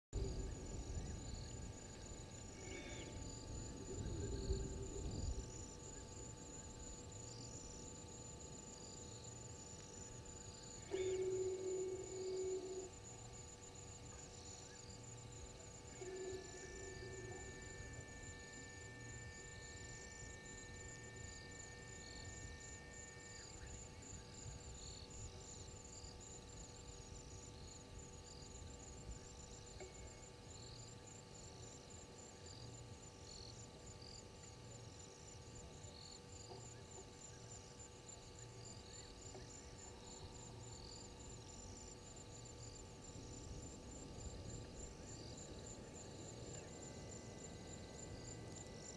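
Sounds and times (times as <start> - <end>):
long steady higher tone: 0.2 - 7.8, 9.7 - 25.4
insect chirps: 0.2 - 48.9
night insects trilling: 0.2 - 48.9
steady electrical hum: 0.2 - 48.9.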